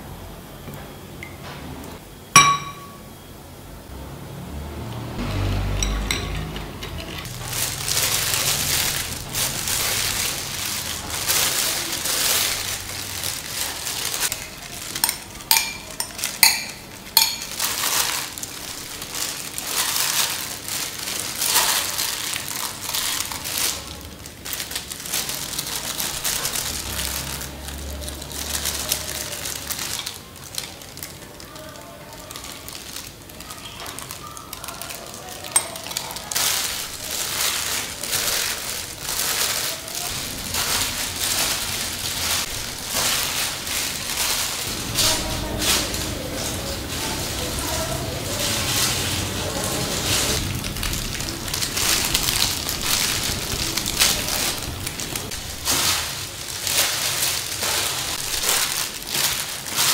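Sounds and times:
plastic gloves rustling: 2.4s - 3.0s, 5.2s - 59.9s
dishes clinking: 2.4s - 3.1s, 5.6s - 7.4s, 15.0s - 18.2s, 35.5s - 36.2s.

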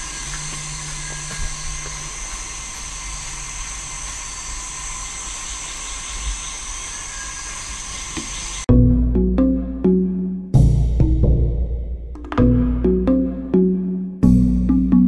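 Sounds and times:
high-pitched insect chorus: 0.0s - 8.6s
synthesizer music: 8.7s - 15.0s.

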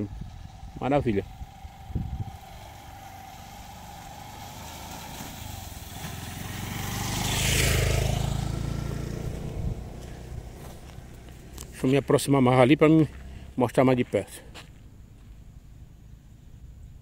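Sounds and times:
small motorcycle passing: 0.0s - 17.0s.

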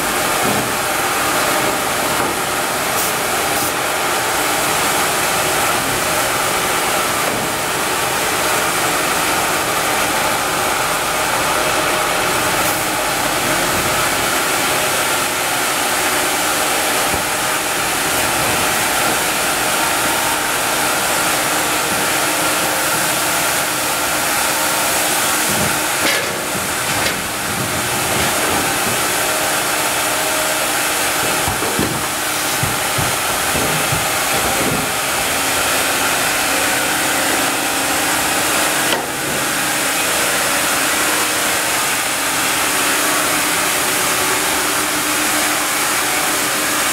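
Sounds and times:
band saw sawing log: 13.6s - 46.6s
knocks of wood handling: 31.1s - 35.5s.

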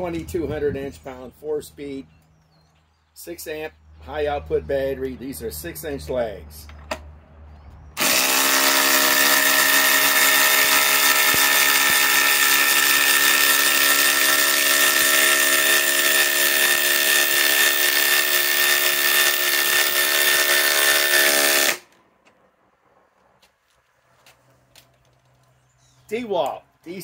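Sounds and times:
impact driver hammering screw into wood: 8.0s - 21.9s.

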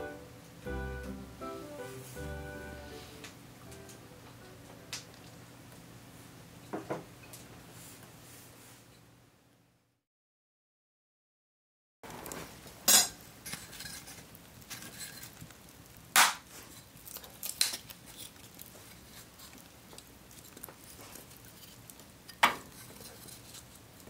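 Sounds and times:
wood fire crackling: 4.8s - 6.1s, 12.1s - 24.0s
sharp loud pops: 16.2s - 16.4s.

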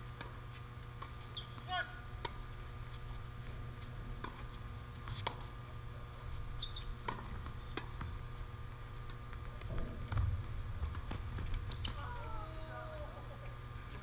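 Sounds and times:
low background rumble: 5.7s - 14.0s
tennis ball struck by rackets: 7.0s - 8.1s.

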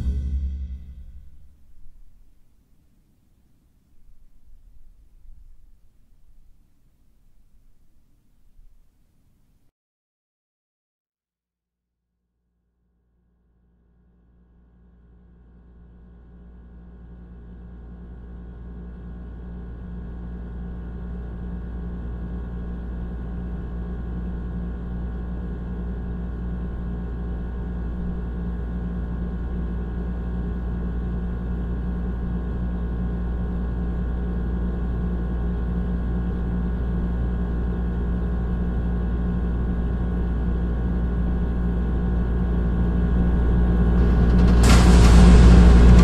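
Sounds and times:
low rumbling drone: 0.0s - 1.8s, 38.6s - 46.0s.

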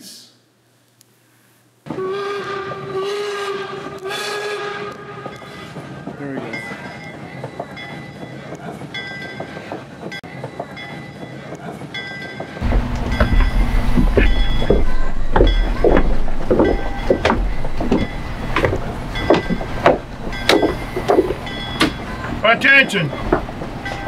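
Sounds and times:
steam train chuffing strokes: 1.9s - 24.0s
low rumble: 12.6s - 22.4s.

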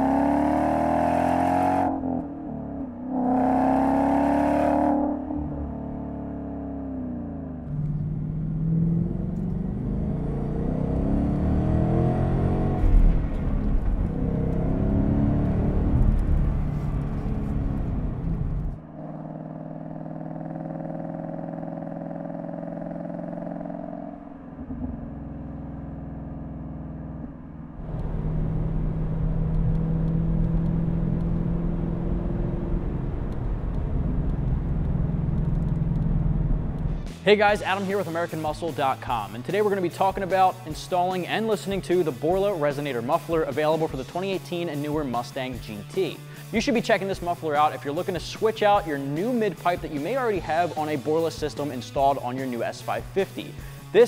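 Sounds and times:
car engine revving: 0.0s - 45.1s.

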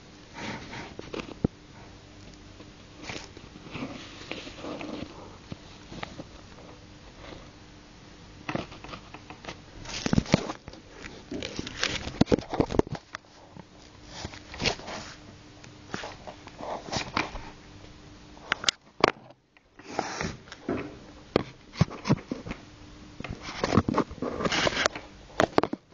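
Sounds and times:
faint steady hum: 0.0s - 25.9s
handling rustles and clicks: 8.4s - 17.5s.

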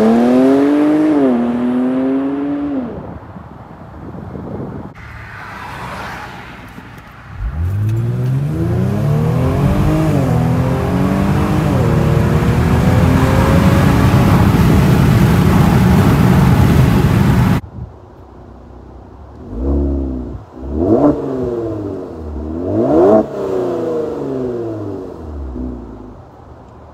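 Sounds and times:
engine revving: 0.0s - 3.0s, 7.4s - 17.6s, 19.4s - 25.9s
car engine accelerating at full throttle: 0.0s - 3.2s, 6.7s - 17.6s, 19.3s - 26.4s
car passing: 0.0s - 17.6s
car engine idling: 6.6s - 20.7s.

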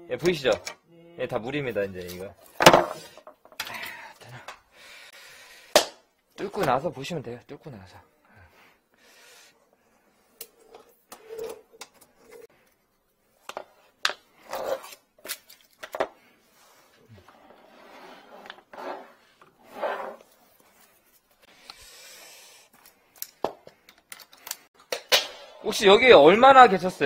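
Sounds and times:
rustling and rubbing: 16.4s - 21.5s.

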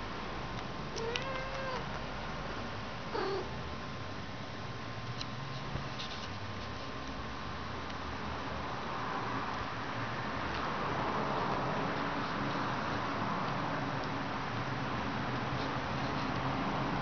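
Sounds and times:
cat meowing: 0.9s - 1.9s, 3.1s - 3.5s.

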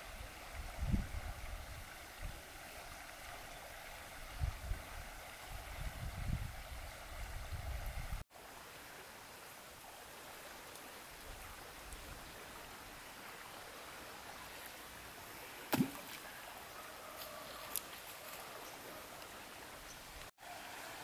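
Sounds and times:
faint riverside ambience: 0.0s - 21.0s
fishing line plopping into water: 15.7s - 16.3s.

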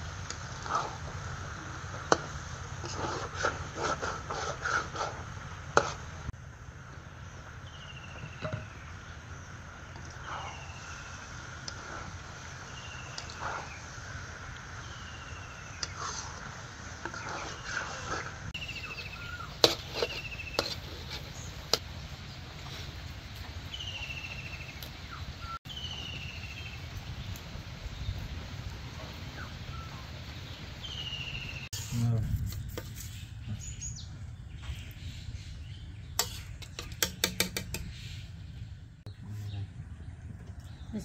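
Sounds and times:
metal spatula scraping iron pan: 18.9s - 21.8s, 36.2s - 38.0s.

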